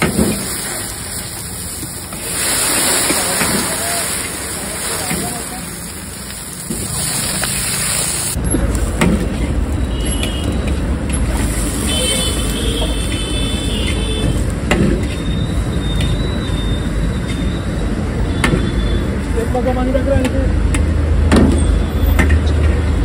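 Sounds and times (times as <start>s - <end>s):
steady hissing wash: 0.0s - 8.4s
roadside traffic rumble: 0.0s - 23.0s.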